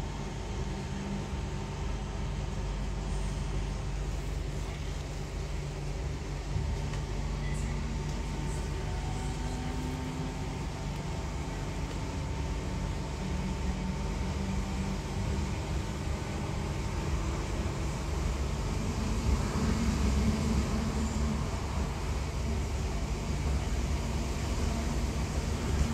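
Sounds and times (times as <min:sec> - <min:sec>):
thin steady whine: 0:00.0 - 0:25.9
train rumble and hum: 0:00.0 - 0:25.9.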